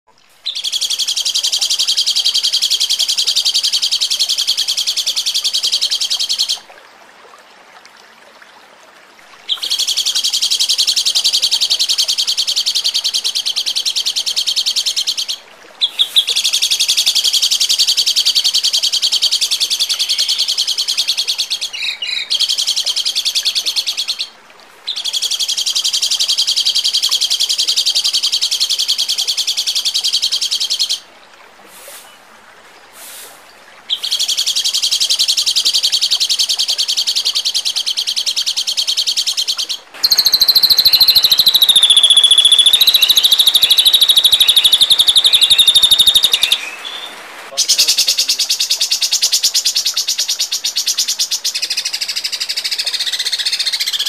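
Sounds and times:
songbird rapid high trill: 33.9 - 54.0.

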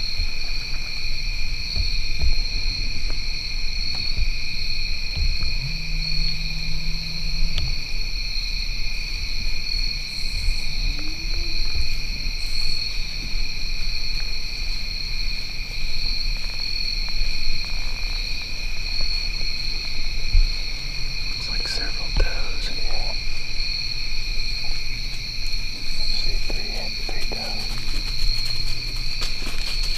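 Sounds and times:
insect chorus drone: 0.0 - 29.9
low rumble: 1.9 - 14.8.

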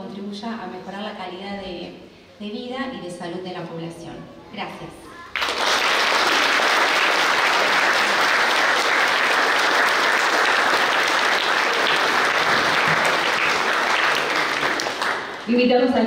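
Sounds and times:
crowd applauding: 5.4 - 15.5.

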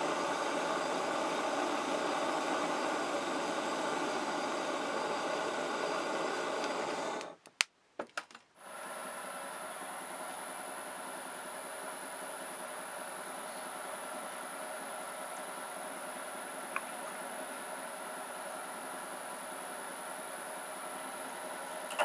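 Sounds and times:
machine tool running: 0.0 - 7.3.

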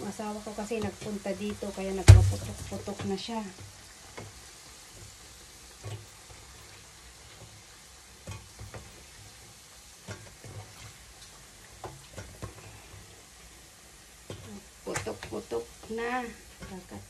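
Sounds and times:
dough sizzling in hot oil: 0.0 - 17.0
oil popping and spattering: 2.0 - 5.2.

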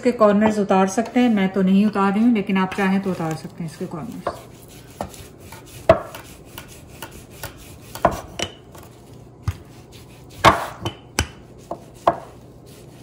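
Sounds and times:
rolling pin knocking on stone: 5.8 - 8.6.

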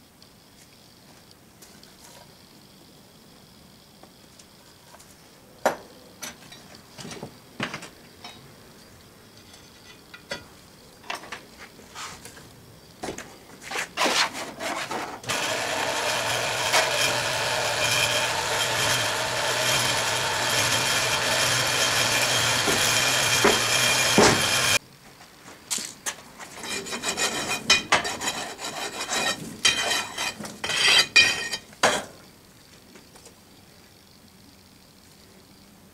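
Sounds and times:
sand rasping across a screen: 11.9 - 12.2, 13.6 - 24.8, 26.4 - 31.1.

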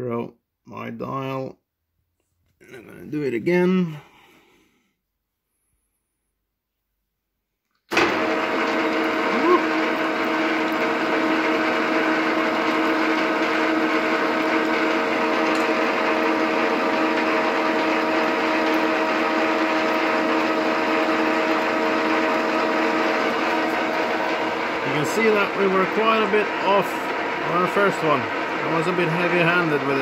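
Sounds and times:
milling machine whining: 7.9 - 30.0.

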